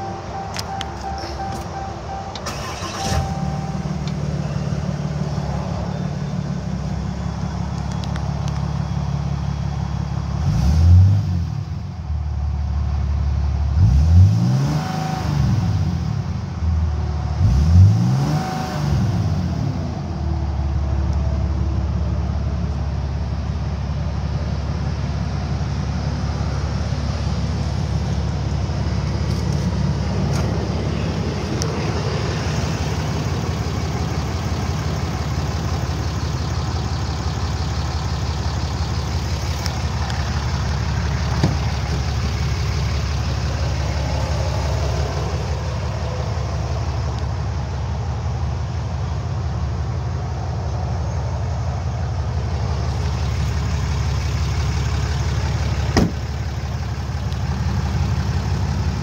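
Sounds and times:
diesel engine idling and revving: 0.0 - 59.0.

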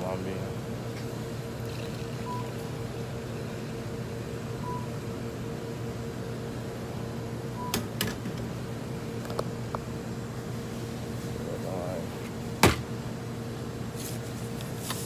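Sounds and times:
electrical hum of coolers: 0.0 - 15.0
short high beeps: 4.6 - 4.9.

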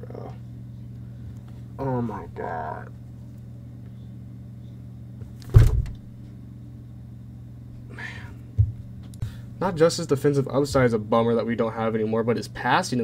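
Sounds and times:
steady low hum: 0.0 - 13.0
small thud: 5.2 - 6.1
loud thump: 5.4 - 6.1.

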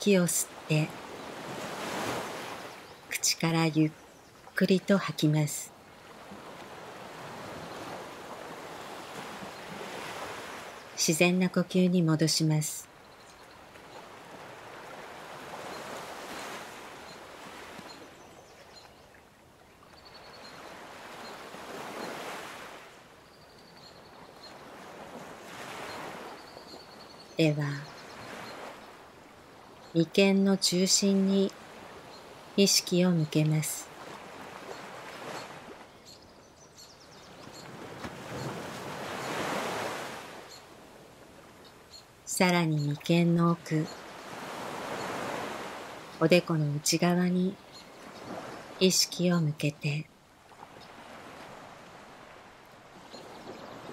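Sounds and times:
ocean waves washing in: 0.0 - 12.9, 37.4 - 41.6, 42.2 - 53.9.

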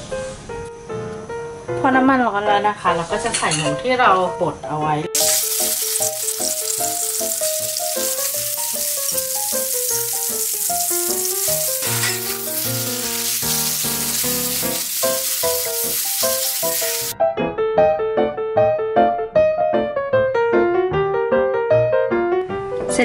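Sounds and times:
light piano music: 0.0 - 23.0
meat and greens sizzling in a wok: 5.2 - 17.2.

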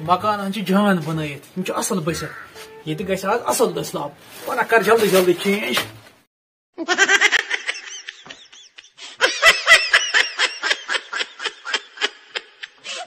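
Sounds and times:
high-pitched rapid laughter: 6.8 - 13.0.

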